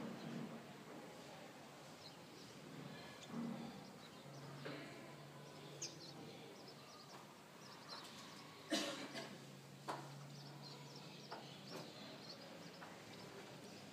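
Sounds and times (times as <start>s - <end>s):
faint bird chirps: 10.2s - 13.9s.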